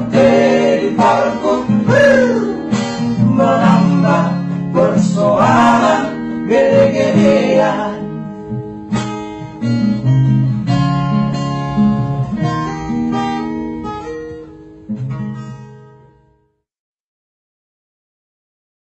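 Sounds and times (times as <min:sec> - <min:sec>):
person singing: 0:00.0 - 0:08.1
acoustic guitar notes: 0:00.0 - 0:16.6.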